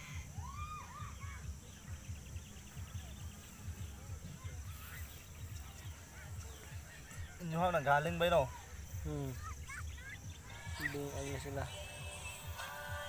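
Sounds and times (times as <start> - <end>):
faint high calls: 0.0 - 1.9.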